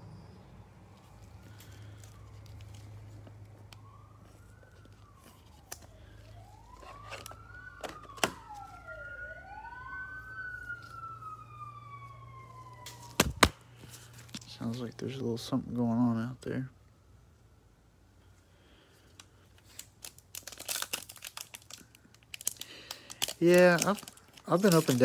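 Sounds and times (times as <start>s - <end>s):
distant siren wailing: 0.0s - 15.6s.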